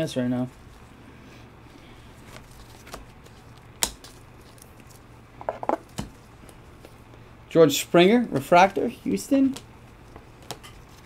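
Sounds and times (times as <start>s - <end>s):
faint steady hum: 0.0s - 11.0s
cards rubbing: 1.8s - 7.0s.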